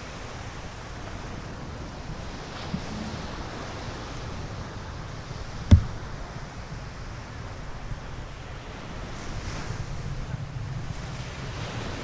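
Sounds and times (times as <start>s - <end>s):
surf washing on beach: 0.0s - 12.0s
sharp knock: 5.7s - 6.0s.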